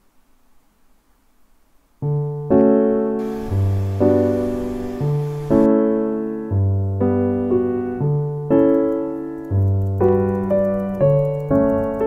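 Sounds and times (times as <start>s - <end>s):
gentle piano chords: 2.0s - 12.0s.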